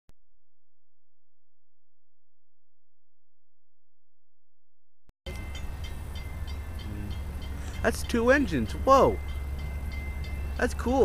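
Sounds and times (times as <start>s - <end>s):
steady low hum: 5.3s - 11.0s.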